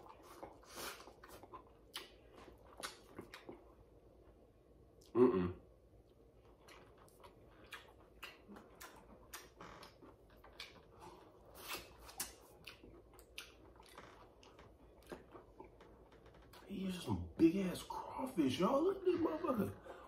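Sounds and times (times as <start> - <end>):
person eating with mouth sounds: 5.0 - 5.7, 6.5 - 14.3.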